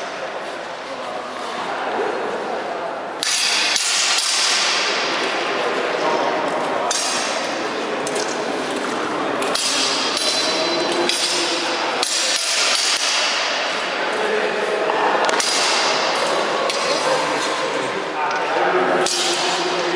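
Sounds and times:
swords clashing: 3.2s - 5.1s, 6.9s - 8.4s, 9.4s - 14.0s, 15.3s - 17.3s, 19.0s - 19.8s.

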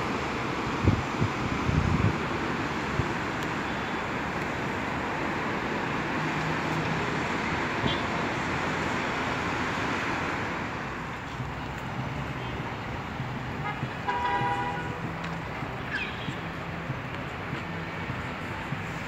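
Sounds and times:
road traffic hum: 0.0s - 19.0s.

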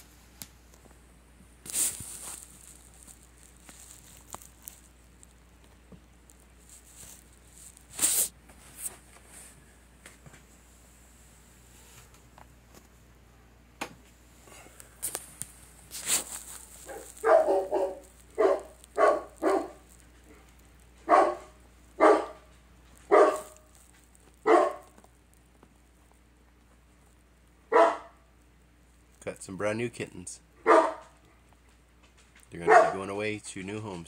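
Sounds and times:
dog barking: 16.8s - 19.8s, 21.0s - 22.5s, 23.1s - 23.6s, 24.4s - 25.0s, 27.7s - 28.2s, 30.6s - 31.2s, 32.6s - 33.1s.

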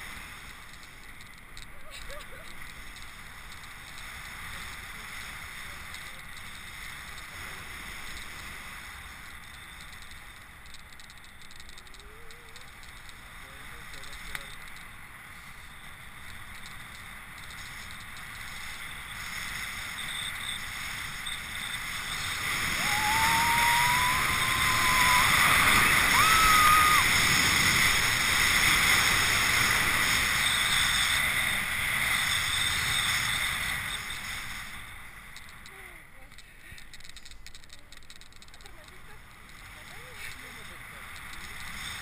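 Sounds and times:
thin rising whistle-like tone: 20.0s - 27.1s
wind buffeting microphone: 21.0s - 30.4s.

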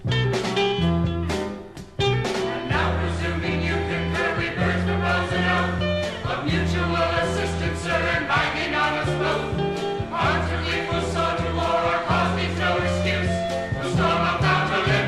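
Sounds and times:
band with strong bass line: 0.0s - 15.0s
group of voices singing: 2.6s - 15.0s.

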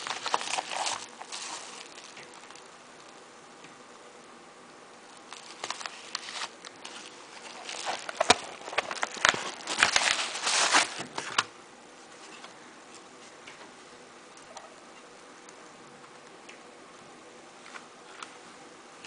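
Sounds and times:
paper mailer crinkling: 0.0s - 2.7s, 5.3s - 11.5s.

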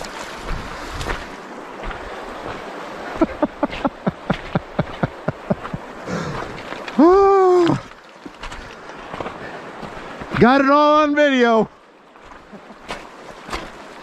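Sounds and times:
river water running over gravel: 0.0s - 14.0s
person making short huh sounds: 6.0s - 7.8s.

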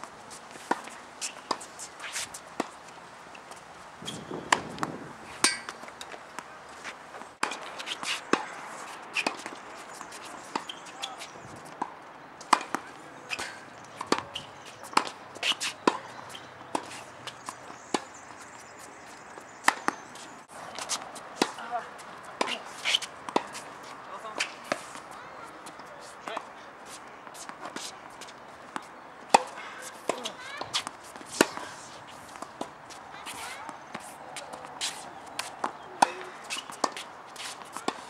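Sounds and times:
tennis ball bouncing: 0.5s - 6.5s, 7.4s - 18.5s, 19.6s - 26.5s, 27.2s - 38.0s
racquets striking ball: 7.4s - 18.1s, 19.6s - 26.5s, 27.3s - 38.0s.

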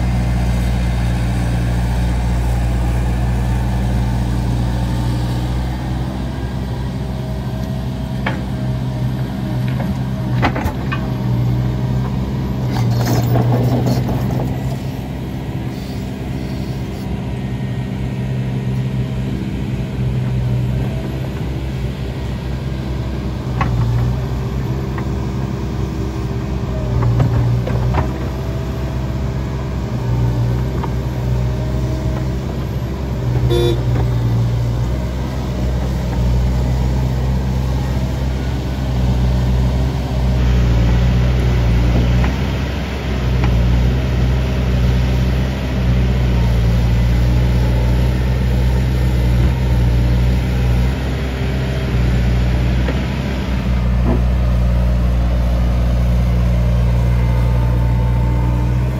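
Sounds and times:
diesel engines running: 0.0s - 58.9s
excavator hydraulics working: 12.4s - 17.2s.

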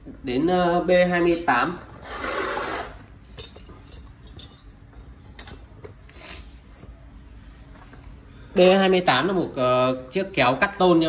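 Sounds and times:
metal tools clinking: 3.2s - 5.8s, 6.6s - 7.0s.

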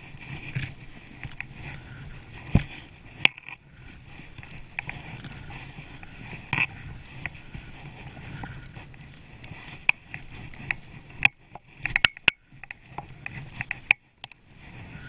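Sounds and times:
sharp clicks and knocks: 9.8s - 14.4s
skis rushing through powder snow: 14.5s - 15.0s.

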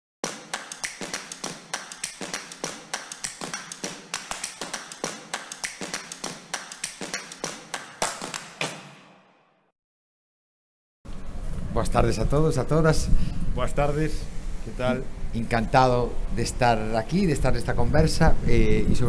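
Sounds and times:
sharp rapid taps: 0.2s - 9.0s.

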